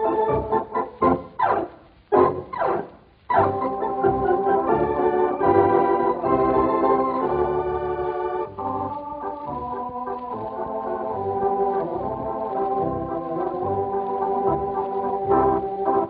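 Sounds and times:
organ playing chords: 0.0s - 16.0s.

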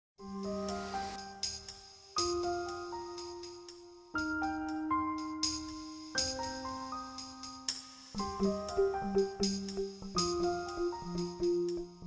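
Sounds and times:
background music: 0.2s - 12.0s.

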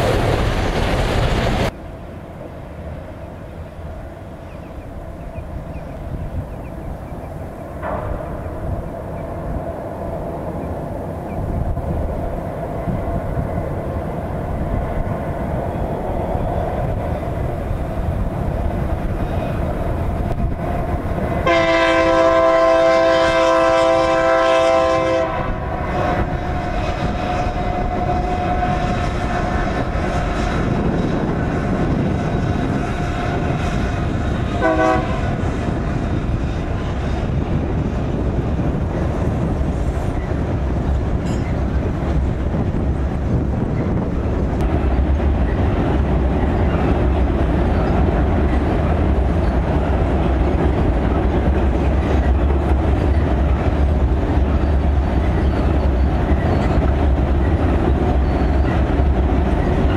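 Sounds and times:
freight train rumbling: 0.0s - 59.9s
locomotive air horn: 21.4s - 30.8s, 32.2s - 35.4s.

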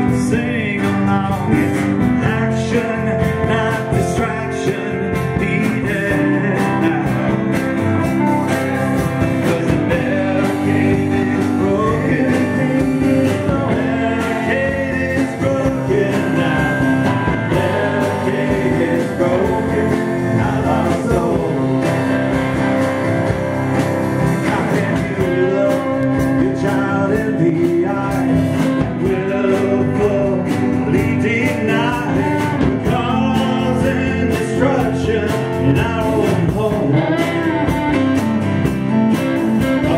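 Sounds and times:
man singing lead: 0.0s - 23.0s, 24.2s - 38.4s, 39.2s - 39.9s
live rock-country band: 0.0s - 39.9s.

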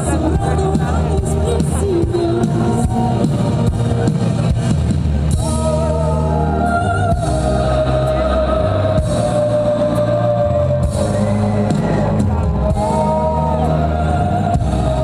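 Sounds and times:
woman singing into a microphone: 0.0s - 4.1s, 5.4s - 12.1s, 12.9s - 15.0s.

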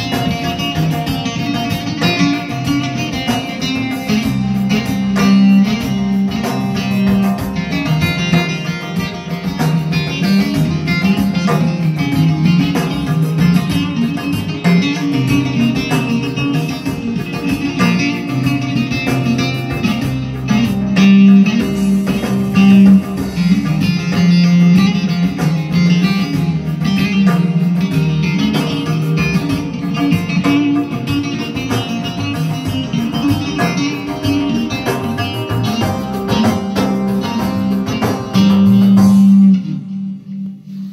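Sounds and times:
amplified lute plucked melody: 0.0s - 40.9s.

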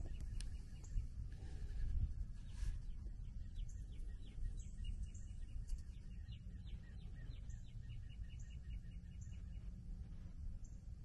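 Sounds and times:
bird chirping: 0.0s - 1.1s, 2.4s - 9.9s.

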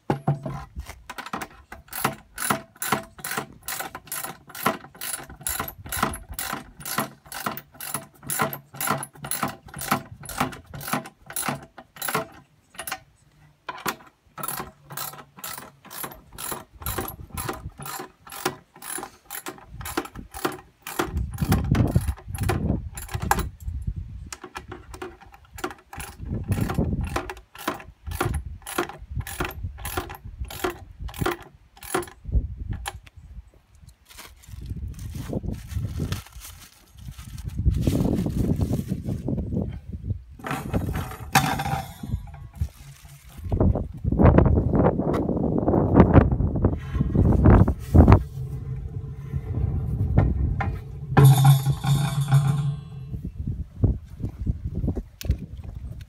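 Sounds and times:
dull thumps handling plastic drum: 0.0s - 3.1s.

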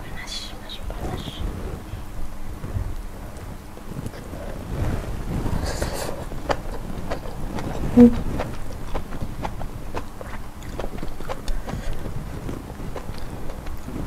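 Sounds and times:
low steady rumble: 0.0s - 14.0s
person chewing food: 5.5s - 14.0s
brief low hum: 7.7s - 8.5s.

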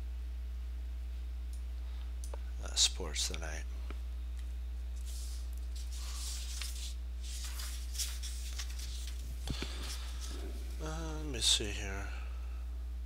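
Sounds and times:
low electrical hum: 0.0s - 13.0s
soft rustles: 4.9s - 10.8s.

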